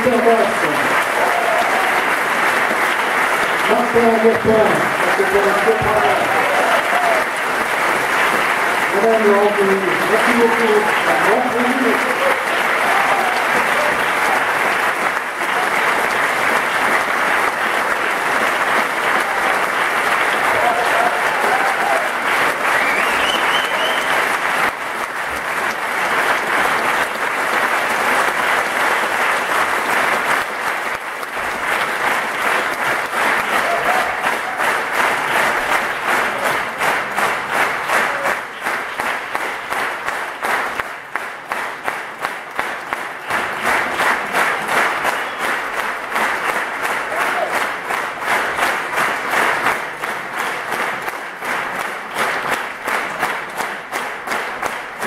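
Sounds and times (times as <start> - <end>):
audience cheering: 0.0 - 39.4, 44.6 - 48.0
audience applauding: 0.0 - 55.0
rhythmic clapping in unison: 0.0 - 55.0.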